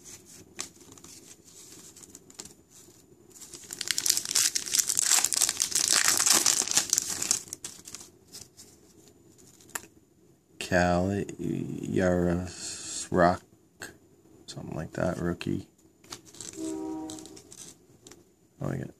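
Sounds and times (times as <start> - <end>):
foil wrapper crinkling and tearing: 3.4 - 8.1, 16.1 - 17.8.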